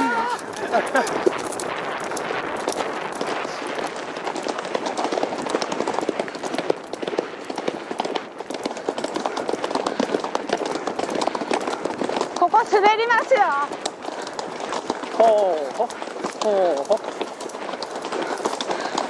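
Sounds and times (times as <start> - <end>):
horse hoofbeats cantering: 0.0 - 19.0
steady rush of noise: 0.0 - 19.0.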